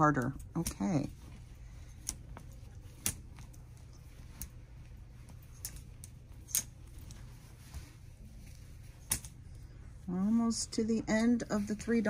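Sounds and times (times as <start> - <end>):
clothes hangers clicking on rail: 0.0 - 7.3, 9.0 - 9.6
low steady hum: 0.0 - 12.0.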